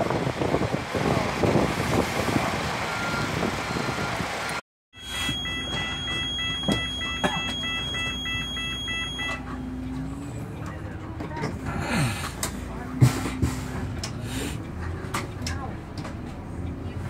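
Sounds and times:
wind noise: 0.0s - 4.5s
outdoor bustle: 0.0s - 17.0s
warning beeper: 5.0s - 9.4s.

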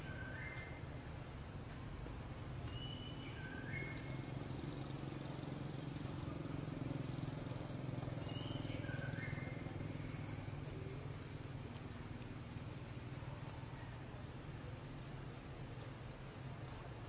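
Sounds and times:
bird whistling: 0.0s - 0.8s, 2.7s - 4.2s
low steady rumble: 0.0s - 17.0s.

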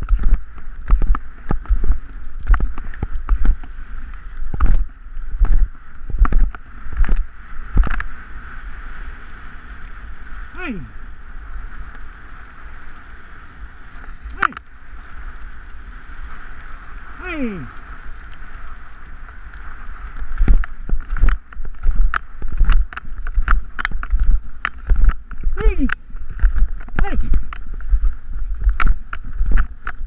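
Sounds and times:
bike rattling over gravel: 0.0s - 30.0s
tyres rolling on gravel: 0.0s - 30.0s
wind: 0.0s - 30.0s
person calling: 10.5s - 11.0s, 14.3s - 14.6s, 17.1s - 17.8s, 25.5s - 26.0s, 27.0s - 27.4s.

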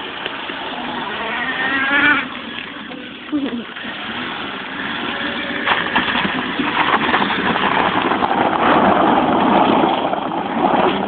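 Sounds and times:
tyres on gravel: 0.0s - 11.0s
car engine revving hard: 0.6s - 2.7s.

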